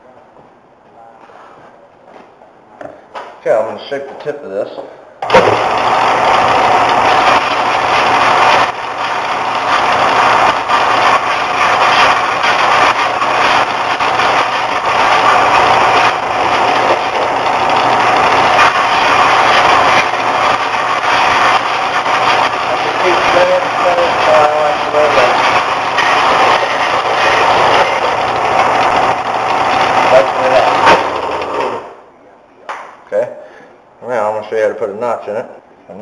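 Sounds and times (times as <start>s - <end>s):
belt sander whining and grinding: 5.2s - 31.9s.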